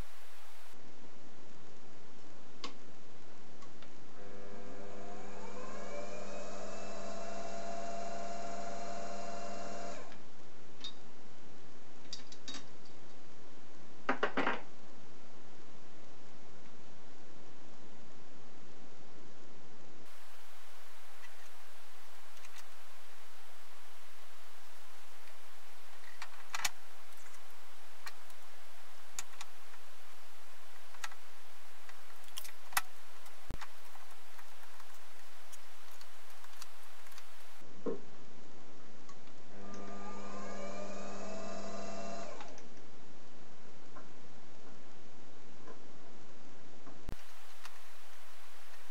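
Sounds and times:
steady low hum: 0:00.0 - 0:12.0, 0:20.0 - 0:37.8, 0:47.1 - 0:48.9
lathe motor whine: 0:04.2 - 0:10.1.

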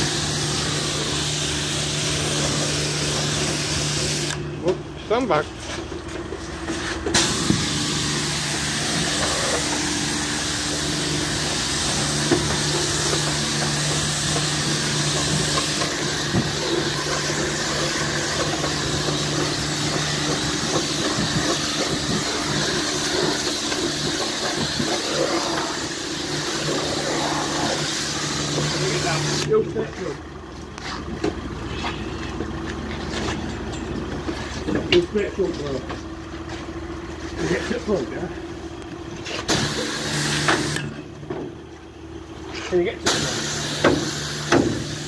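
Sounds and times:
pressure washer spray hissing: 0:00.0 - 0:04.4, 0:07.1 - 0:29.5, 0:39.5 - 0:40.9, 0:43.0 - 0:45.0
low machine hum: 0:00.0 - 0:45.0.

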